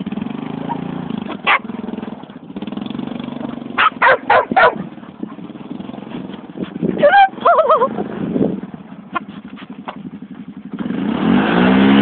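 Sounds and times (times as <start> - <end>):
quad bike engine running: 0.0 - 12.0
dog barking: 0.7 - 1.7, 3.8 - 5.0.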